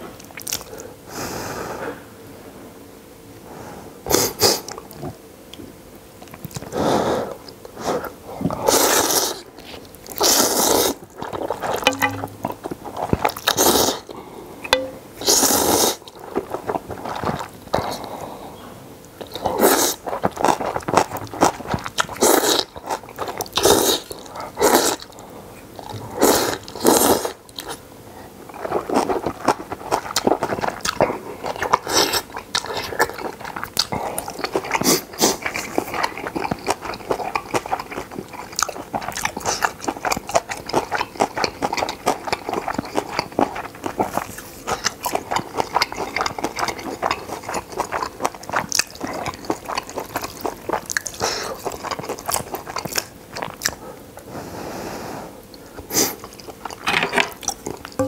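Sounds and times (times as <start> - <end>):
wet chewing and mouth clicks: 8.8 - 13.6, 28.6 - 53.8, 55.5 - 58.0.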